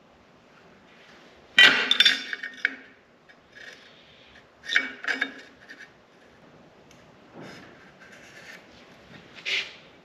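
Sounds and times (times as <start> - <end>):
metal parts clanking on steel: 4.7 - 5.6.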